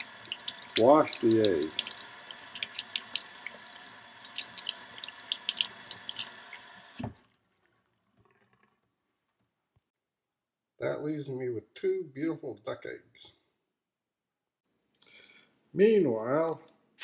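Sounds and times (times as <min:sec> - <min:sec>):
water splashing and dripping: 0:00.0 - 0:08.7
tap water running into sink: 0:00.0 - 0:08.9.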